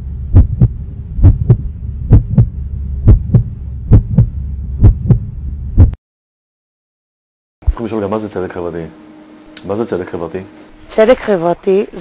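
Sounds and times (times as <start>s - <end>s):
steady low drone: 0.0s - 6.0s
heartbeat thumps: 0.1s - 6.0s.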